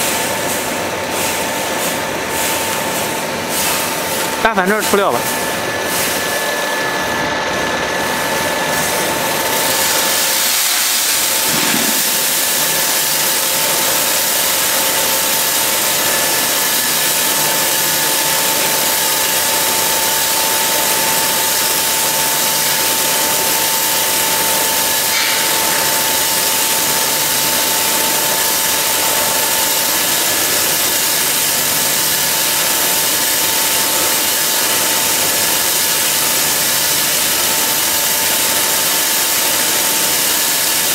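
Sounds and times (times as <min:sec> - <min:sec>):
roaster motor hum: 0:00.0 - 0:40.9
seeds pouring into steel tray: 0:09.6 - 0:14.7.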